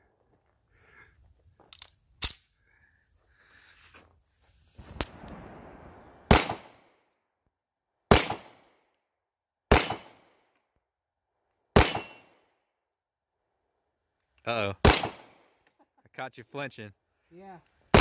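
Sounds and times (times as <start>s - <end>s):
pistol shots: 6.3s - 6.9s, 8.1s - 8.7s, 9.7s - 10.4s, 11.8s - 12.4s, 14.8s - 15.5s.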